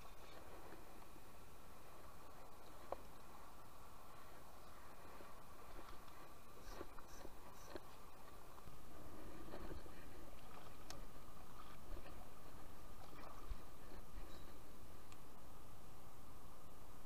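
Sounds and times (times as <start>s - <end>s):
faint clicks: 10.8s - 11.1s.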